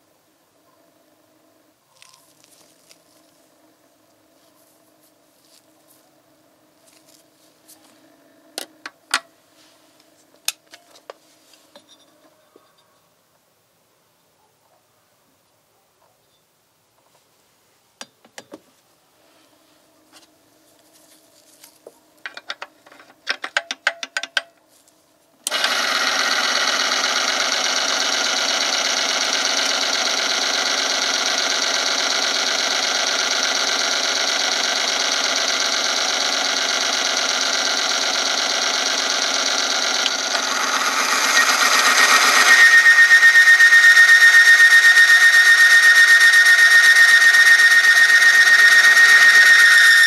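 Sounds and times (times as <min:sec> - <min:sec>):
electric motor running: 0:25.5 - 0:50.0
shaft grinding against steel: 0:39.6 - 0:50.0.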